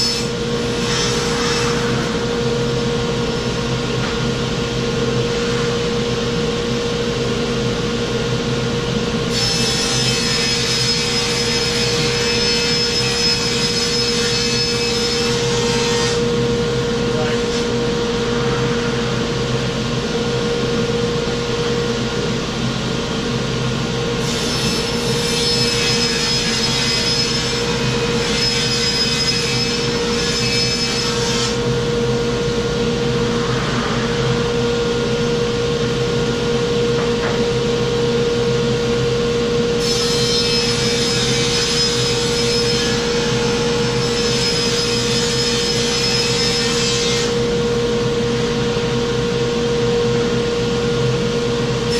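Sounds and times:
saw cutting plywood: 0:24.2 - 0:31.6.

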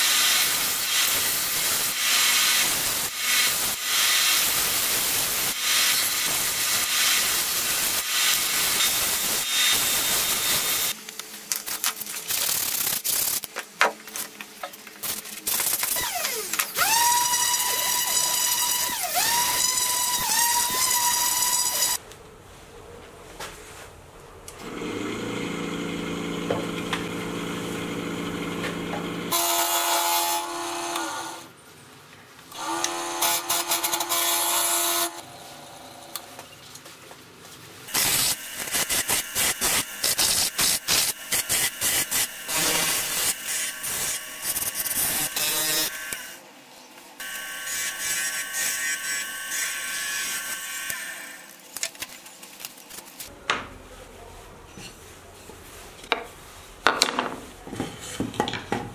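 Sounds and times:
turning tool cutting wood: 0:15.5 - 0:22.0, 0:24.6 - 0:31.5, 0:32.5 - 0:35.3, 0:37.9 - 0:46.4
lathe motor humming: 0:24.6 - 0:29.3.

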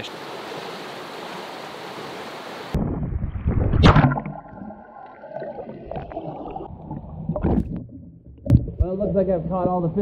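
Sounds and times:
underwater rumbling and gurgling: 0:02.8 - 0:10.0.

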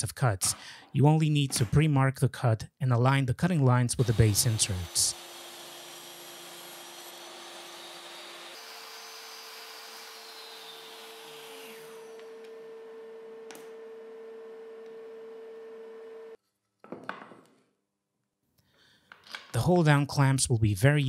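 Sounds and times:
table saw running: 0:04.0 - 0:16.3
saw whine: 0:04.0 - 0:16.4.

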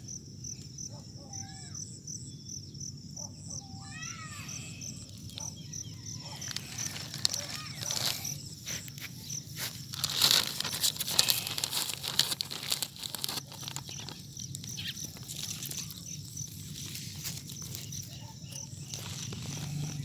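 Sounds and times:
plastic sheeting and grass rustling: 0:06.2 - 0:20.0.

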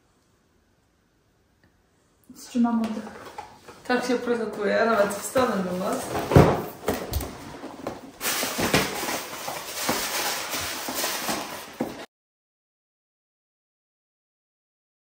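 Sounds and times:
rustling and shuffling movement: 0:02.8 - 0:12.1.

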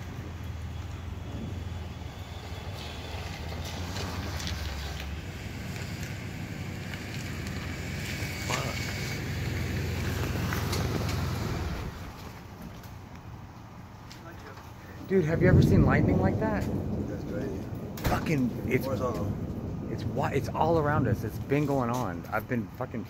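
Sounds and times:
thunder rumbling: 0:00.0 - 0:12.3, 0:15.0 - 0:22.8.

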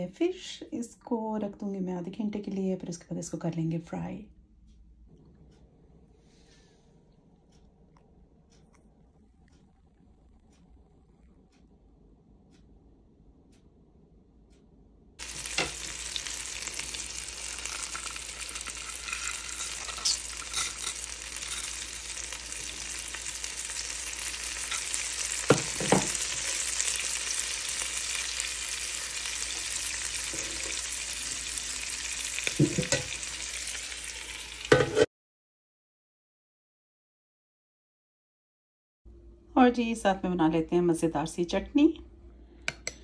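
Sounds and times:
fish sizzling in oil: 0:15.2 - 0:35.1.

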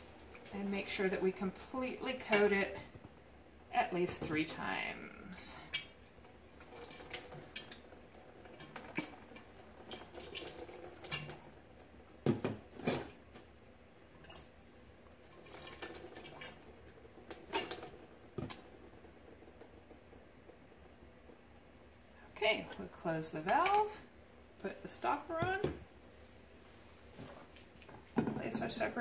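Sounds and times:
water trickling and dripping: 0:05.7 - 0:11.7.

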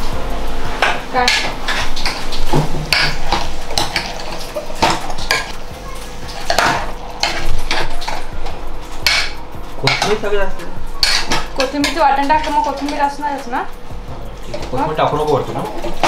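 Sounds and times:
metal spoon scraping pot: 0:11.0 - 0:13.2.

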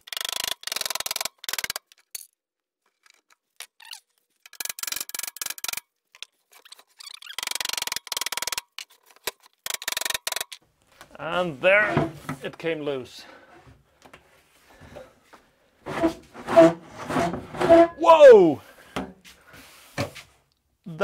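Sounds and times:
rattling and scraping on workbench: 0:15.8 - 0:18.0.

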